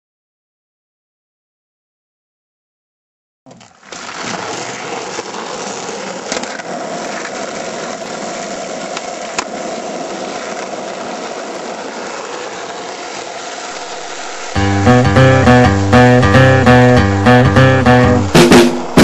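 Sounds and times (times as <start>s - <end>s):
skateboard wheels rolling on asphalt: 3.5s - 14.7s.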